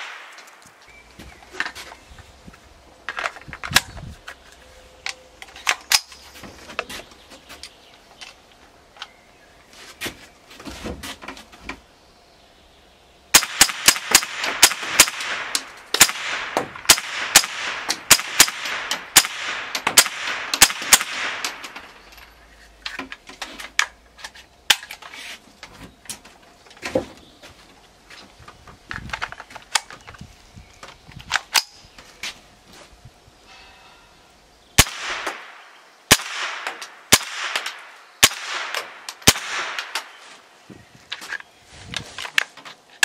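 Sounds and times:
rifle shots cracking: 0:00.0 - 0:00.7, 0:13.3 - 0:22.0, 0:34.8 - 0:40.2.

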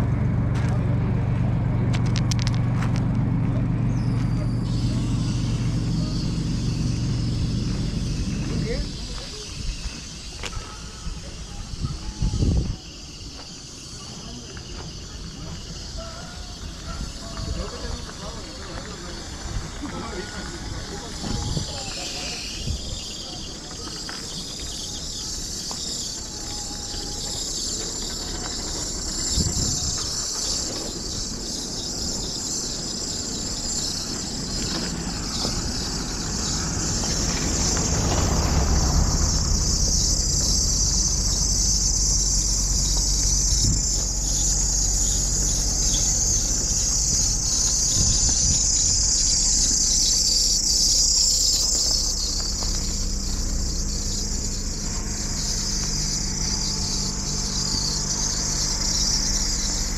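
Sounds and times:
low steady rumble: 0:00.0 - 0:09.7, 0:27.9 - 0:59.9
insects chorus: 0:00.0 - 0:59.9.

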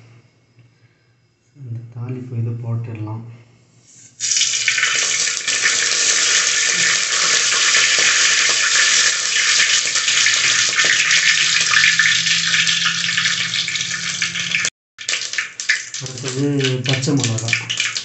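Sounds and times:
spices sizzling in hot oil: 0:04.2 - 0:14.7.

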